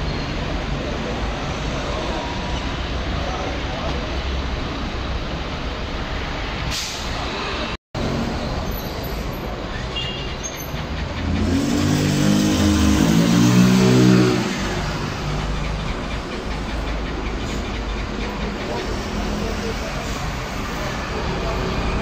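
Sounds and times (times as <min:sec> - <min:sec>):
street traffic noise: 0:00.0 - 0:22.0
vehicle engine revving: 0:11.0 - 0:15.6.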